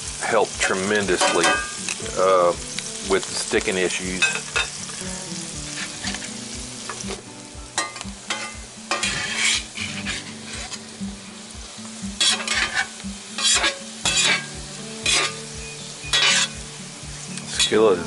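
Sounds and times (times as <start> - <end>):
potatoes sizzling in a skillet: 0.0 - 18.0
metal spatula scraping a pan: 5.6 - 7.1, 7.8 - 10.9, 12.2 - 16.6.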